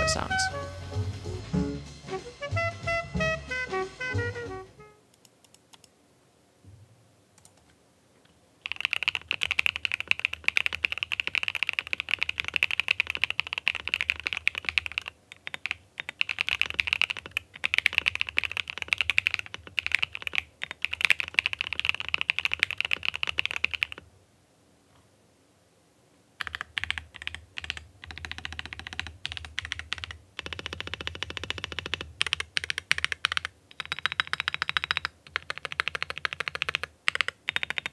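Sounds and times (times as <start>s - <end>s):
mechanical keyboard typing: 7.4s - 7.7s, 8.6s - 24.0s, 26.4s - 37.9s.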